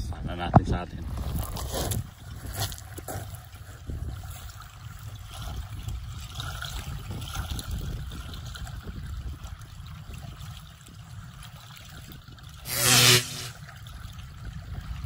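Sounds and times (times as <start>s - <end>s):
wind rumbling on microphone: 0.0s - 2.8s, 3.6s - 15.0s
loud buzzing burst: 12.7s - 13.6s.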